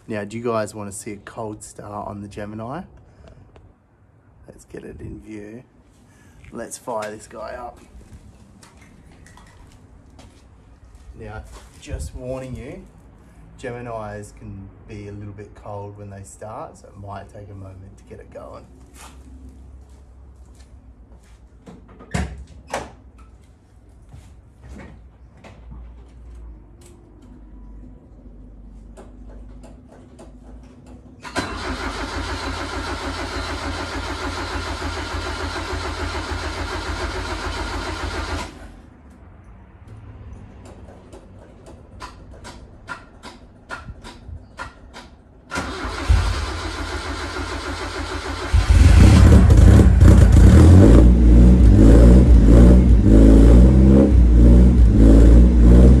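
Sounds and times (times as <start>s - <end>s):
engine starter cranking: 31.2s - 38.7s, 45.0s - 50.4s
car engine revving: 48.6s - 56.0s.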